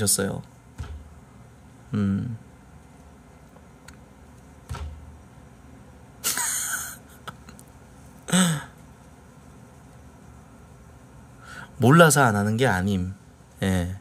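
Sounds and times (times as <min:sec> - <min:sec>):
man's breathy laughter: 0:06.2 - 0:07.5.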